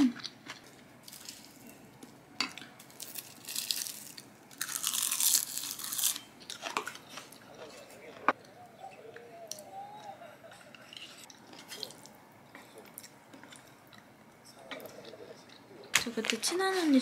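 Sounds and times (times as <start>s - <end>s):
crunching and chewing: 0.2s - 1.8s, 2.4s - 8.6s, 10.5s - 15.7s.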